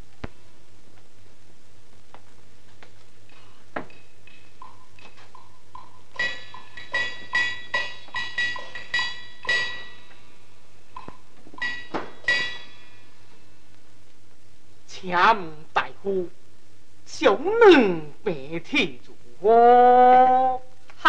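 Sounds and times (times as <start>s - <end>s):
opera percussion strikes: 5.8s - 10.2s, 11.6s - 13.0s.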